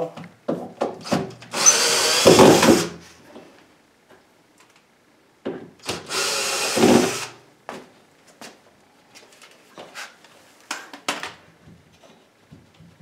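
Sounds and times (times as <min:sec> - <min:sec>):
cordless drill running: 0:01.0 - 0:03.0, 0:05.8 - 0:07.4.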